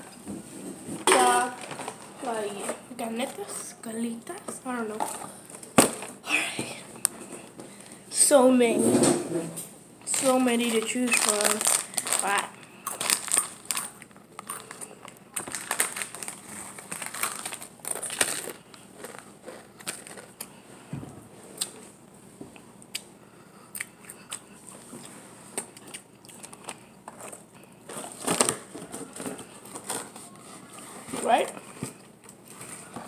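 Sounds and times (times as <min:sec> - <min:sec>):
plastic packet crinkling: 0:10.0 - 0:20.5
crunchy chewing: 0:11.1 - 0:20.6, 0:22.9 - 0:28.2.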